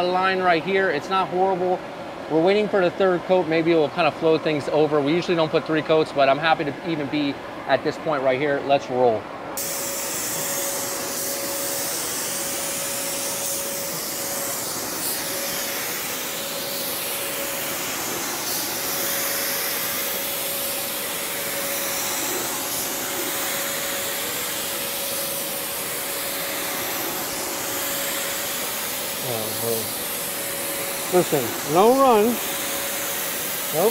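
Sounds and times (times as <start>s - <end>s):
steady hum: 0.0s - 33.9s
electric blowers running: 9.6s - 33.9s
paint spray gun hissing: 9.6s - 33.9s.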